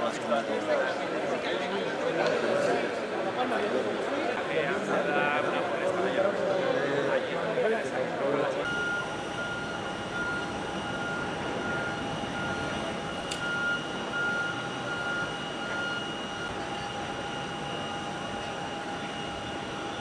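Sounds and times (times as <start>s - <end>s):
airport machinery rush and whine: 8.5s - 20.0s
repeating electronic beep: 8.7s - 20.0s.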